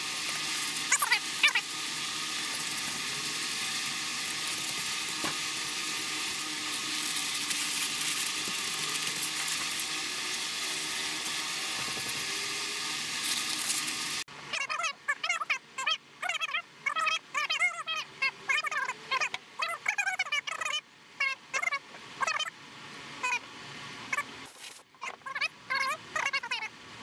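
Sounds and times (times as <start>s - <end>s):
rag wiping metal: 0.0s - 14.2s
steady hiss: 0.0s - 14.2s.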